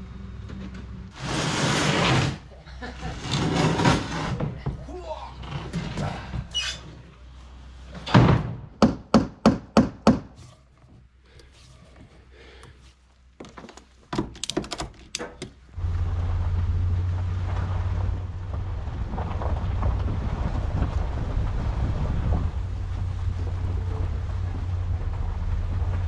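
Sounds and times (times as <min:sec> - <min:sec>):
truck driving rumble: 0:00.0 - 0:05.0, 0:15.6 - 0:26.0
hammer driving nails into wood: 0:08.2 - 0:10.4
wind on microphone: 0:17.8 - 0:26.0.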